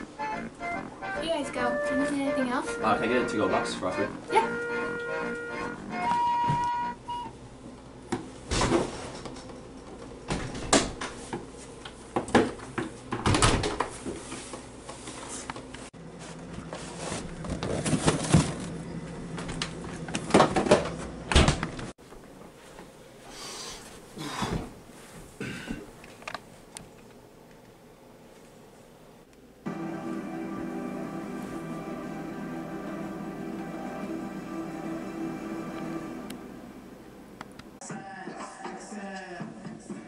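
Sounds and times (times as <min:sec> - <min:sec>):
items clattering in refrigerator: 0:16.6 - 0:21.8
low steady hum: 0:29.3 - 0:37.8.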